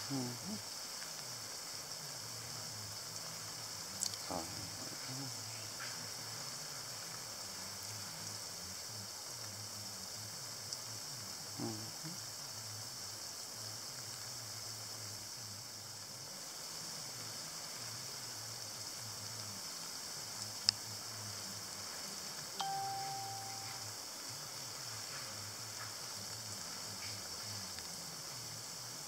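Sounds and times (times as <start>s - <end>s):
sprinkler spraying water: 0.0s - 29.0s
faint low hum: 17.2s - 29.0s.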